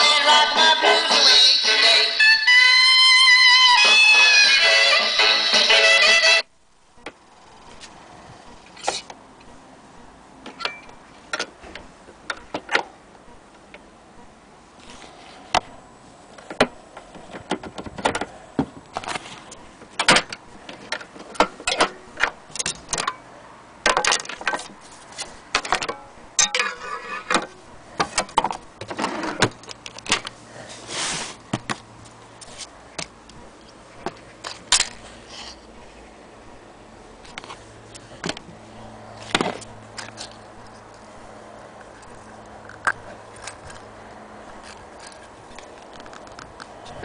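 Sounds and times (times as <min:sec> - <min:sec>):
gramophone parts clicking and rattling: 0:16.4 - 0:23.2, 0:23.8 - 0:30.4
scraping: 0:24.2 - 0:29.6.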